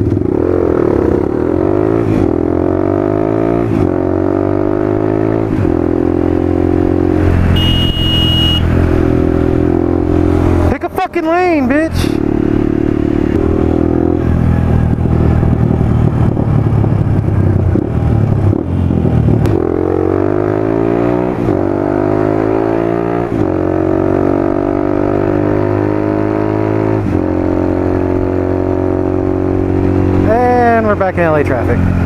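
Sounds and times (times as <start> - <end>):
motorcycle engine revving: 0.0 - 32.0
wind noise: 12.6 - 19.7.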